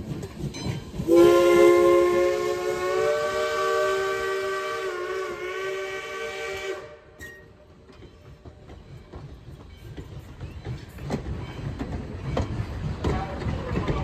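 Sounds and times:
train wheels clicking over rail joints: 0.0 - 4.5, 6.5 - 14.0
steam whistle blast: 1.1 - 7.5.

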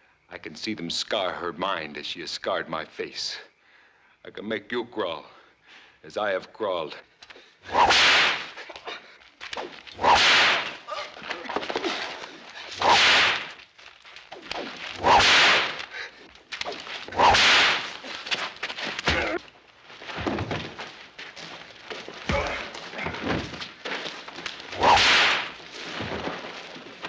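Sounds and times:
bullwhip cracking: 7.7 - 10.8, 12.7 - 13.6, 14.3 - 19.3, 24.4 - 25.6.

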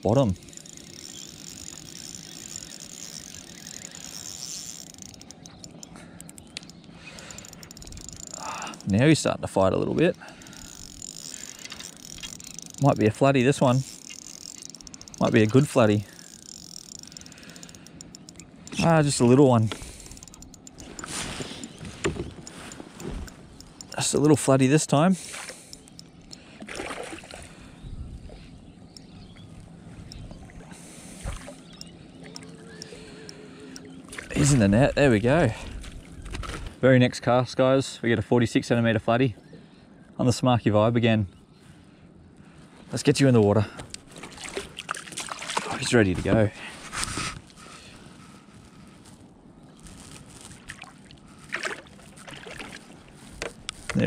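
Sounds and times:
fishing reel gear whirring: 0.0 - 27.0, 27.6 - 36.4
quick reel clicks: 0.2 - 8.9, 10.1 - 24.6
water splashing against kayak: 44.1 - 45.8, 50.5 - 54.0.

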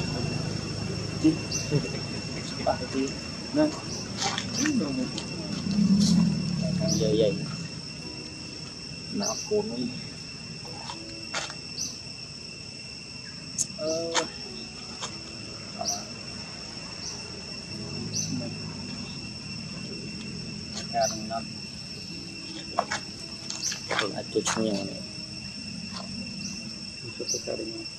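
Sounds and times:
high-pitched insect drone: 0.0 - 27.9.

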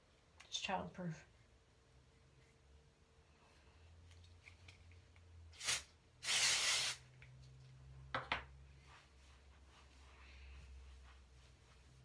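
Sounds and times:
hair spray spraying: 5.6 - 7.0.

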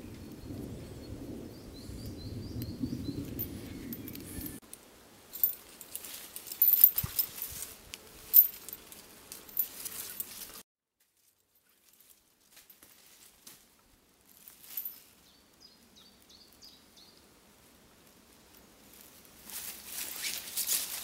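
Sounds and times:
cord handling rustle: 5.3 - 10.6, 11.2 - 13.7, 14.3 - 15.2, 18.9 - 21.0
dry leaves rustling: 5.3 - 10.6, 11.2 - 15.4, 18.8 - 21.0.

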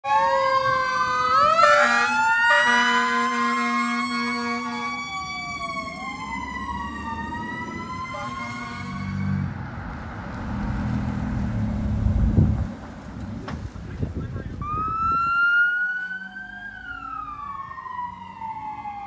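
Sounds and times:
fire engine sirens wailing: 0.0 - 9.6, 14.6 - 19.0
air horn blasts: 1.6 - 5.0, 8.1 - 9.4.

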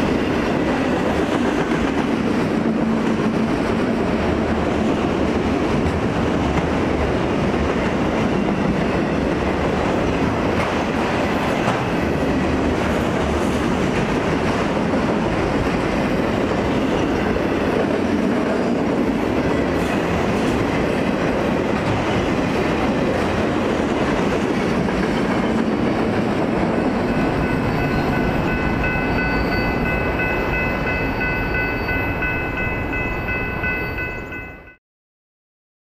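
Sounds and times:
train wheels rumbling on rails: 0.0 - 34.7
crossing warning bell ringing: 26.7 - 34.8.

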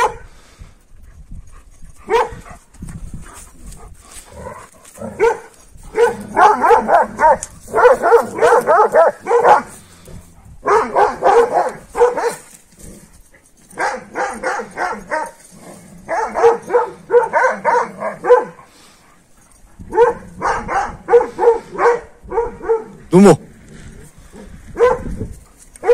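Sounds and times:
dogs barking: 0.0 - 0.3, 2.0 - 2.4, 5.0 - 9.8, 10.6 - 12.5, 13.7 - 15.4, 16.0 - 18.7, 19.9 - 23.1, 24.8 - 25.1.

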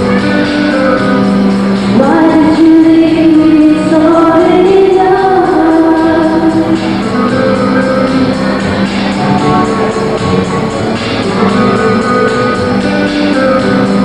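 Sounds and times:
acoustic guitar: 0.0 - 14.0.

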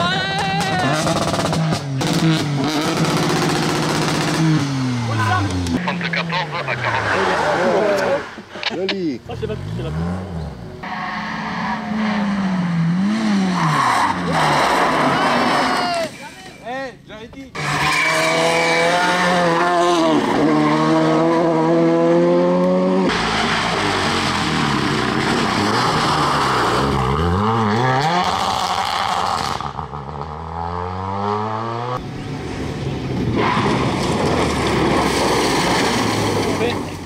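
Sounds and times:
rally car engine revving: 0.0 - 8.6, 9.2 - 16.1, 17.5 - 37.0.

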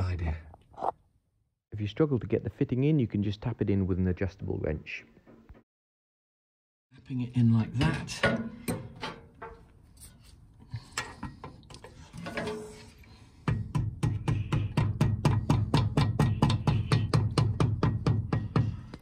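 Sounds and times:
rapid metal knocks: 13.5 - 18.8.

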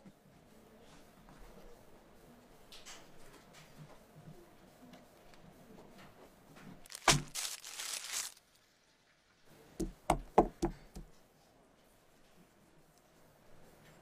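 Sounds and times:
paper crinkling: 6.8 - 8.7.

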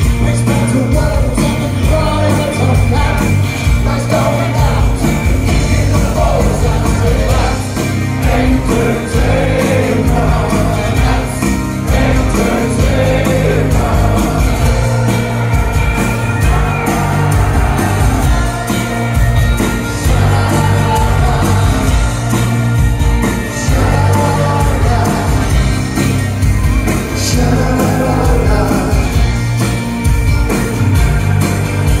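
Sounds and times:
man singing: 0.0 - 15.7, 19.9 - 22.4, 23.5 - 25.9, 27.1 - 29.5
live rock band playing: 0.0 - 32.0.

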